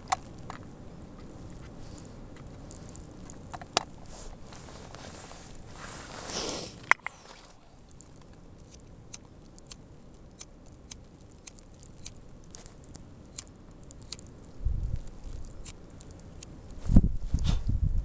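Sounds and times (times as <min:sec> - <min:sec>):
low rumble of wind: 0:00.0 - 0:18.0
rustle: 0:00.0 - 0:18.0
snow ticking on a jacket: 0:04.0 - 0:08.2.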